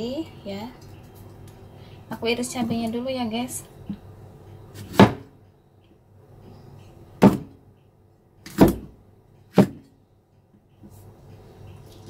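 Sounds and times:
cleaver chopping on wooden block: 4.8 - 5.3, 7.2 - 7.6, 8.4 - 9.9.

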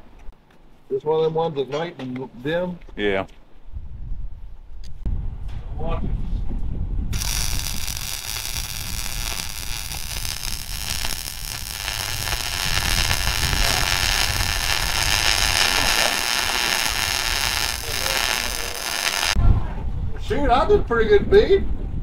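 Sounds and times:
arc welding crackle and sizzle: 7.1 - 19.4.

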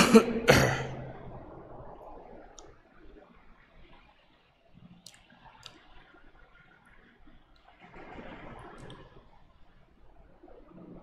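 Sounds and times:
man coughing: 0.0 - 0.9.

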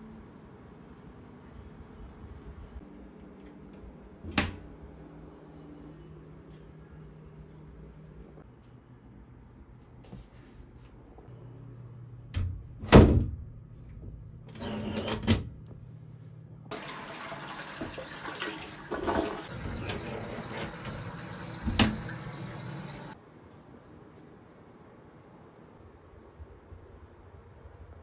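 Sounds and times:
toilet flushing: 16.7 - 23.2.

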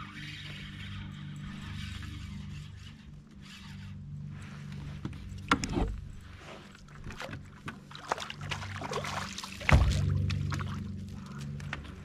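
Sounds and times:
steady low hum: 0.0 - 12.0
water sloshing: 4.0 - 12.0.

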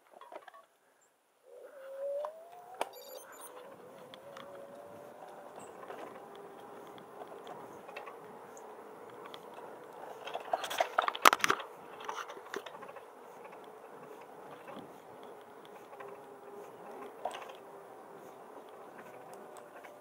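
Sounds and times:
electric hub motor humming: 2.0 - 20.0
crackling clicks and knocks: 2.5 - 17.7.

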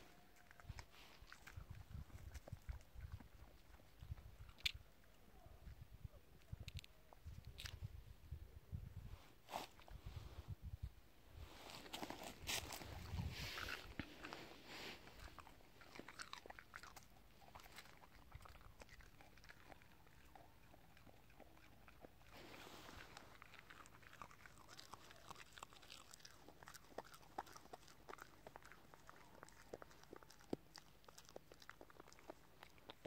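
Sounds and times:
dog chewing hard pods: 0.4 - 4.8, 11.8 - 33.0.

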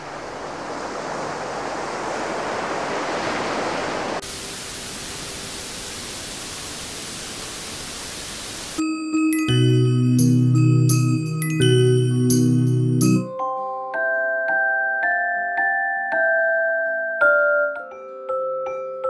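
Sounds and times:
ocean waves sound: 0.0 - 8.8
white noise hiss: 0.0 - 8.8.

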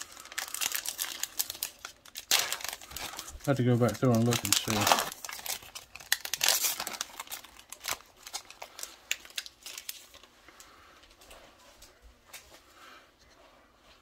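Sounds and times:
foil wrapper crinkling: 0.0 - 10.7.

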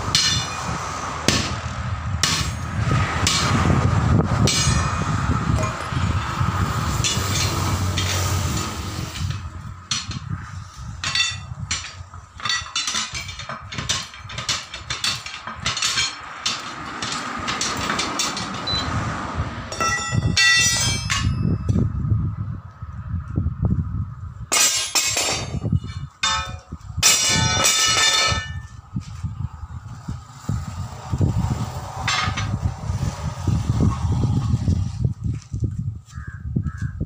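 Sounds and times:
ringing metal clangs: 0.2 - 0.6, 2.2 - 3.6, 4.4 - 6.4, 7.0 - 10.3, 11.0 - 19.0, 19.7 - 21.8, 24.5 - 28.7, 32.1 - 32.6.

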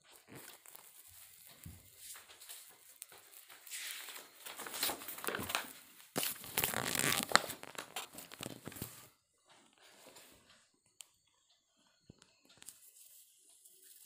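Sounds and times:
sharp crackles: 0.0 - 9.0
rustling and crinkling: 0.0 - 10.6.

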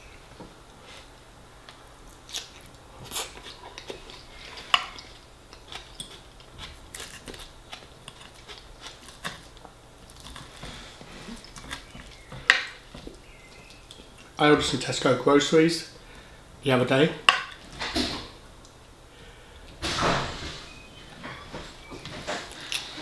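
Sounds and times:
person chewing food: 1.6 - 14.4, 22.4 - 23.0.

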